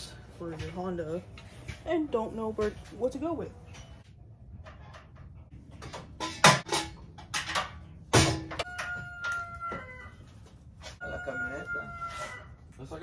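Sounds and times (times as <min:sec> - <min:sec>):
tools and metal parts clanking: 0:03.6 - 0:09.5.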